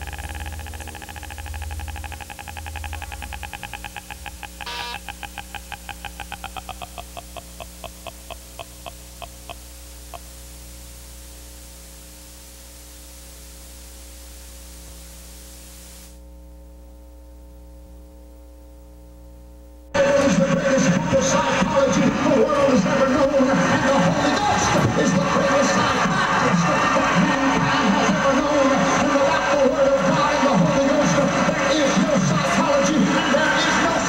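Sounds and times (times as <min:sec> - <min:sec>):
pitched electronic blips: 0:00.0 - 0:10.4
tape hiss: 0:00.0 - 0:24.6
mains hum: 0:00.0 - 0:34.0.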